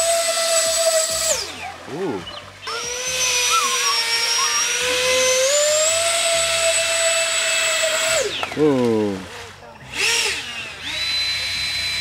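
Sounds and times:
electric fan whining: 0.0 - 12.0.

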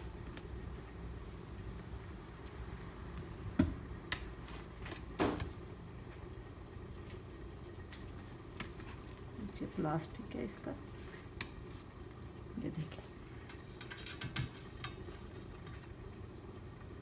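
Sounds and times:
steady low hum: 0.0 - 17.0
knife scrape: 13.6 - 14.9.

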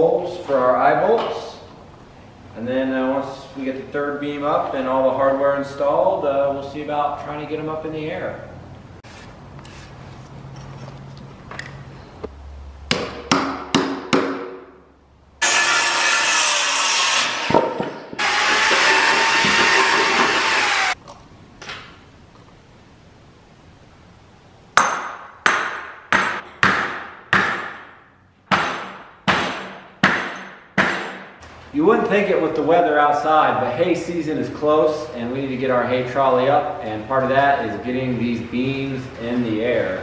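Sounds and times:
power drill boring into wood: 18.2 - 21.0.

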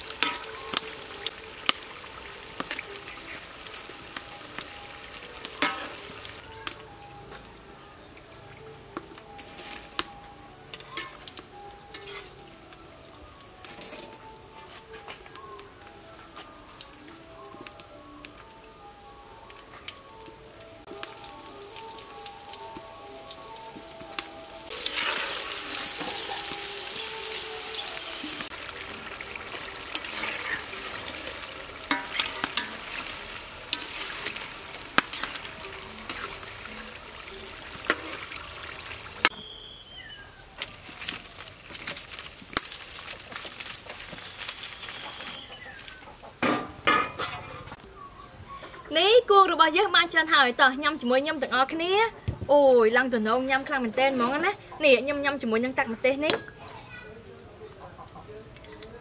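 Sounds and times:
wire skimmer scraping wok: 0.0 - 6.8, 10.7 - 12.5, 24.7 - 39.3
deep-frying sizzle: 0.0 - 47.8.

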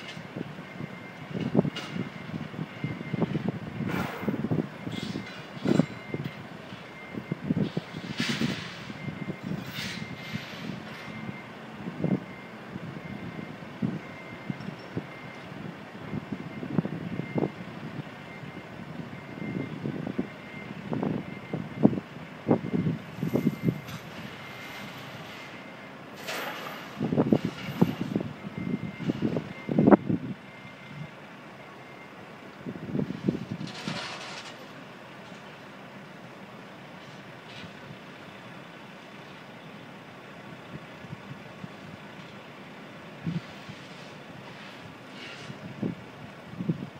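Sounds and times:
heavy truck idling: 0.0 - 46.9
construction bangs and knocks: 2.8 - 6.9.

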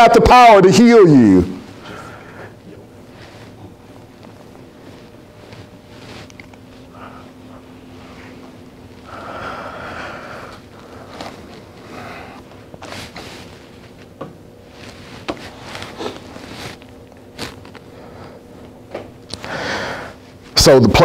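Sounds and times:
faint steady hum: 0.0 - 21.0
soft rustles and clicks: 3.2 - 6.9, 12.5 - 17.9
man breathing and sniffing: 6.0 - 13.9, 19.3 - 20.4.

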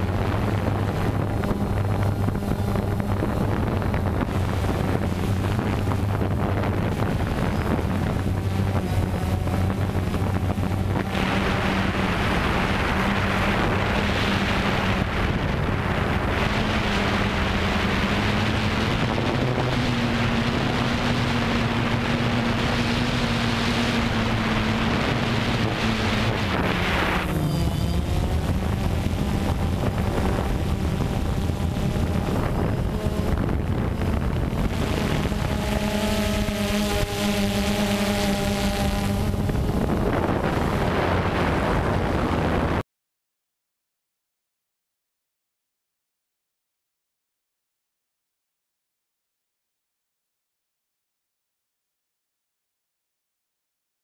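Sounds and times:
drone motors droning: 0.0 - 42.8
wind rushing over microphone: 0.0 - 42.8.

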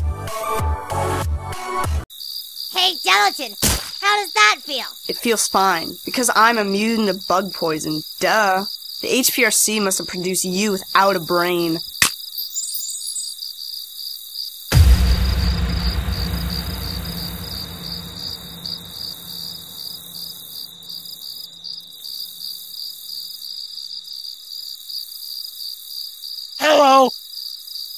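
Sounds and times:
crickets chirping: 2.1 - 27.9
deep boom: 14.7 - 20.4.

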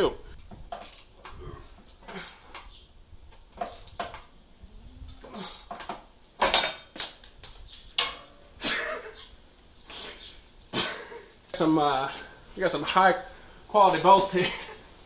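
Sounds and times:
person grunting: 1.4 - 2.4
ratchet wrench straining: 3.6 - 4.2, 5.4 - 5.9.

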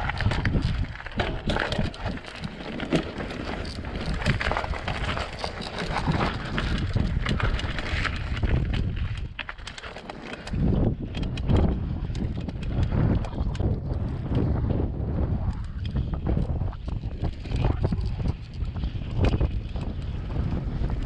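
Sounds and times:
wind buffeting microphone: 0.0 - 9.7, 10.3 - 21.0
bike rattling: 0.0 - 21.0
tyres crunching on gravel: 0.1 - 10.7.

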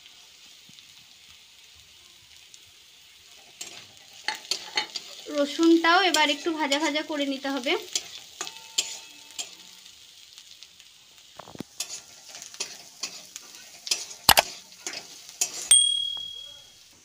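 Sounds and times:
light sizzle of frying: 0.0 - 17.0
metal spatula scraping a pan: 3.2 - 9.9, 11.4 - 15.8.

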